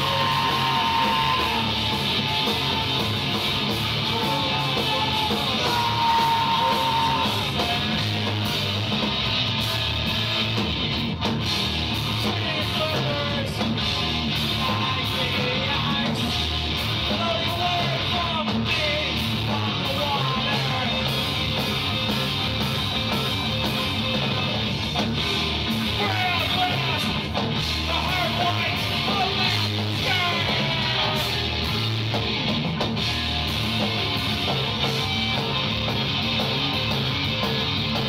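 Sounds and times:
person singing and shouting: 0.0s - 8.5s, 25.3s - 31.7s
bass guitar: 0.0s - 38.0s
distorted electric guitars: 0.0s - 38.0s
drums: 0.0s - 38.0s.

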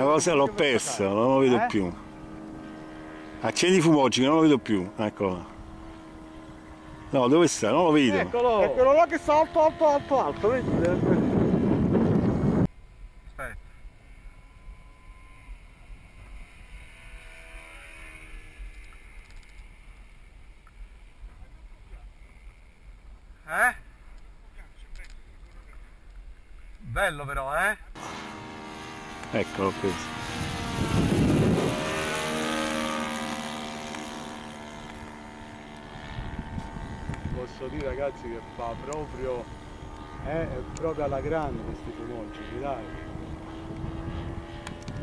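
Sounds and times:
model airplane engine drone: 0.0s - 26.7s, 27.6s - 45.0s
wind rumble on microphone: 9.6s - 12.7s, 30.0s - 32.6s, 35.1s - 45.0s.

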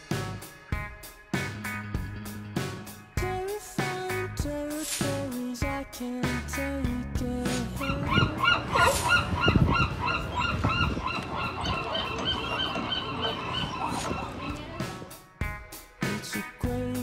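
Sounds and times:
sea lions barking: 7.6s - 15.2s.

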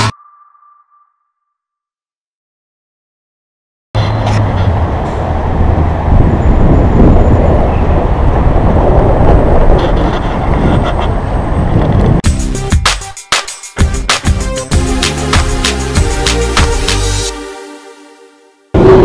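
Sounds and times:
wind buffeting microphone: 4.7s - 12.2s.

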